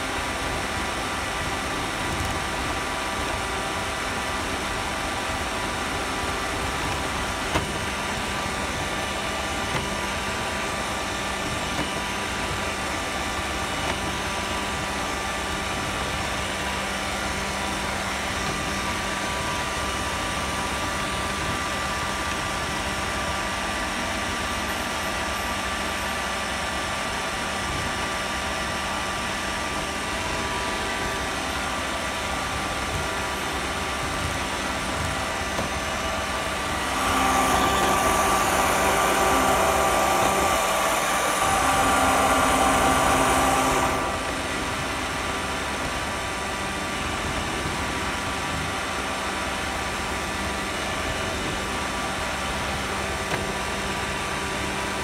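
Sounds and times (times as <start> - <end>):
robot vacuum motor drone: 0.0 - 23.2, 30.1 - 49.1.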